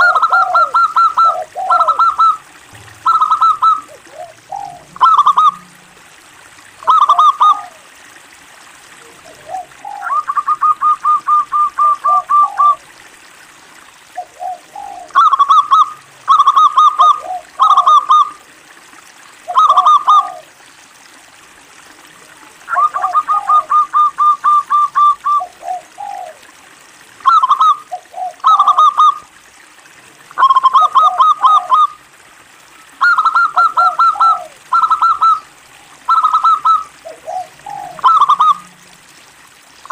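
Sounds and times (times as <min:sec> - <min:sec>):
dove cooing: 0:00.0 - 0:06.2, 0:06.8 - 0:08.0, 0:09.0 - 0:12.9, 0:14.1 - 0:18.4, 0:19.4 - 0:20.6, 0:22.7 - 0:26.6, 0:27.2 - 0:29.3, 0:30.4 - 0:32.0, 0:33.0 - 0:39.0.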